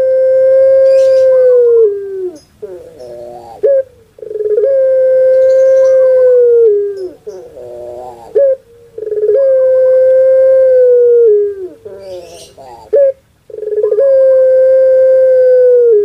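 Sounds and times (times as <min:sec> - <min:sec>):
dove cooing: 0:00.0 - 0:16.0.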